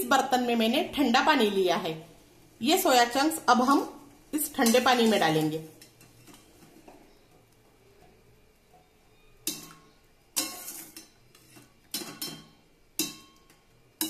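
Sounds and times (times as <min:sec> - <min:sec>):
spoon clattering against metal pots: 0:04.5 - 0:06.6, 0:09.4 - 0:14.0.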